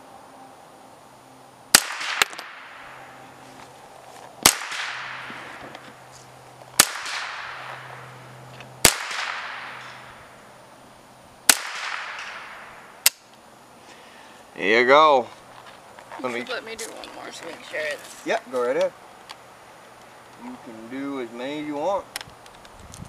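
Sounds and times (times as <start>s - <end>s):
rifle shots echoing: 1.7s - 3.0s, 4.4s - 5.7s, 6.8s - 8.2s, 8.8s - 10.2s, 11.5s - 13.2s.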